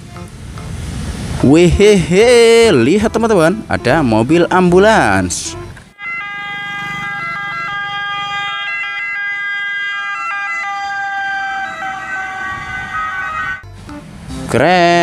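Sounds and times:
electronic ambulance siren: 0:06.0 - 0:13.6.

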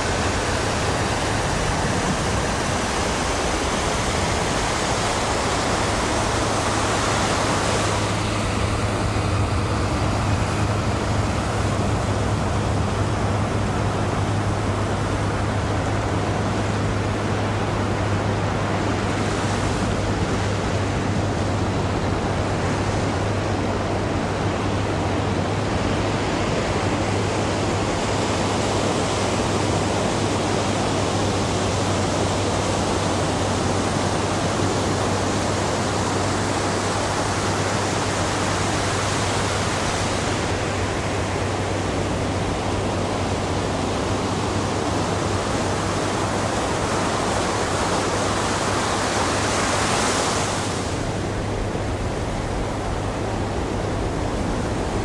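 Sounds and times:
ocean waves breaking: 0:00.0 - 0:55.0
steady low hum: 0:36.4 - 0:55.0.

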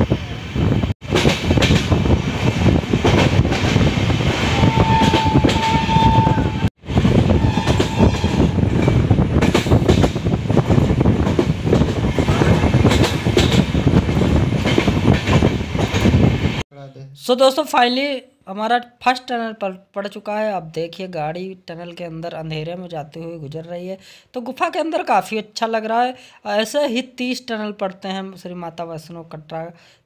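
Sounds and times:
wind noise: 0:00.0 - 0:16.6
train wheel and carriage clatter: 0:01.0 - 0:16.6.

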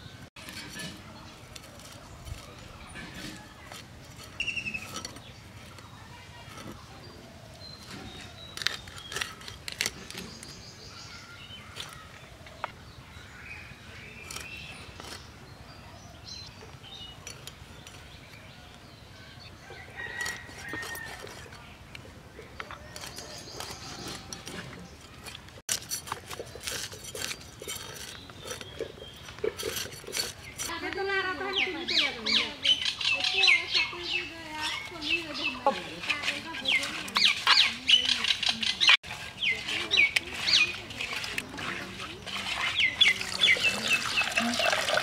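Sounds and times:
blade scraping fish scales: 0:22.8 - 0:30.8, 0:34.7 - 0:45.0.

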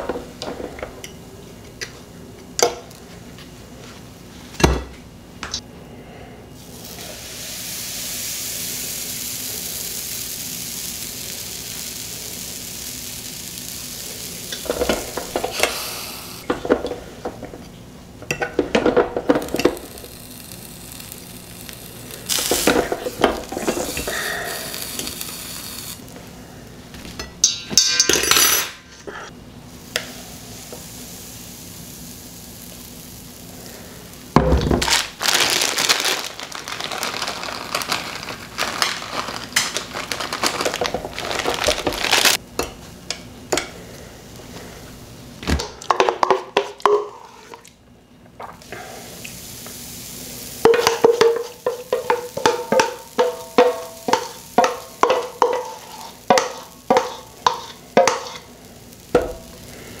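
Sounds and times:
batter sizzling in waffle iron: 0:06.6 - 0:16.5, 0:19.2 - 0:26.2, 0:29.7 - 0:34.4, 0:48.8 - 1:00.0.

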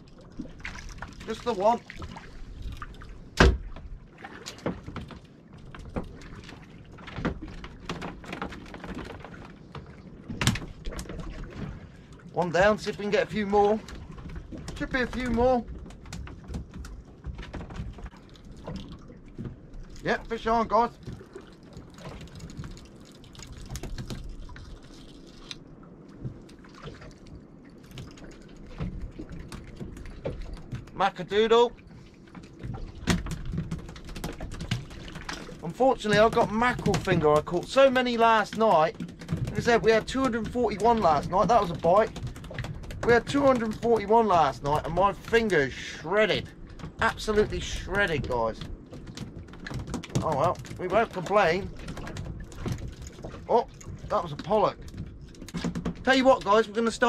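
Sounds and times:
knocks and clatter on a boat: 0:00.0 - 0:57.0
light clicks and knocks: 0:31.6 - 0:57.0.

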